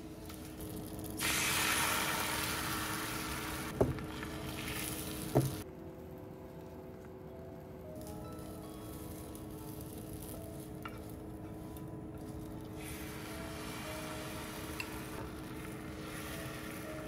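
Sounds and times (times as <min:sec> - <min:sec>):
egg sizzling in a pan: 0:00.1 - 0:05.6, 0:08.5 - 0:17.0
egg mixture pouring: 0:01.2 - 0:05.6.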